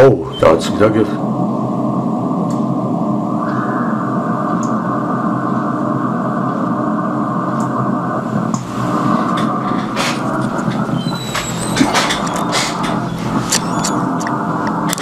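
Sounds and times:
radio static hiss: 0:08.1 - 0:15.0
faint static crackles: 0:08.3 - 0:15.0.

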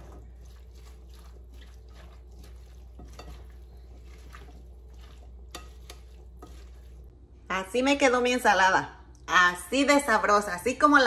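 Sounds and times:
wet squishing of salad stirred: 0:00.0 - 0:07.2.

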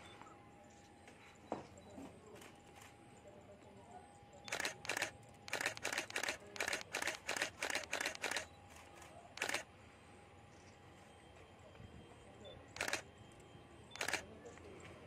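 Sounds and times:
camera shutter firing: 0:04.5 - 0:08.5, 0:09.4 - 0:09.7, 0:12.8 - 0:13.0, 0:14.0 - 0:14.2.

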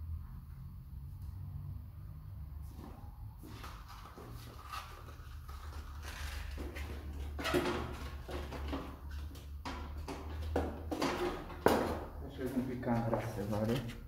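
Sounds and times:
metal stepladder knocks and creaks: 0:06.3 - 0:12.1.

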